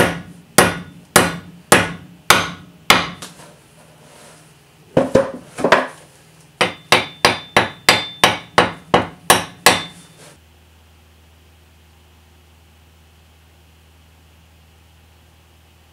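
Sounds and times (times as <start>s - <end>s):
hammer striking wooden wedge: 0.0s - 3.4s, 6.6s - 10.2s.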